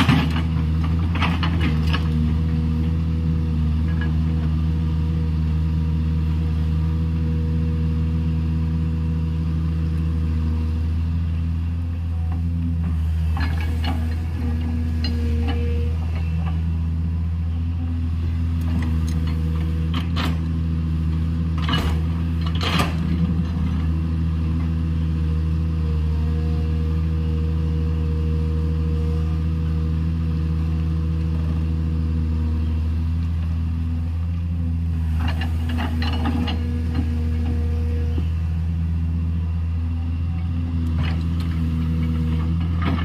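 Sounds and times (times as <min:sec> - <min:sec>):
rock and earth clattering: 0:00.0 - 0:02.5
excavator diesel engine running: 0:00.0 - 0:43.0.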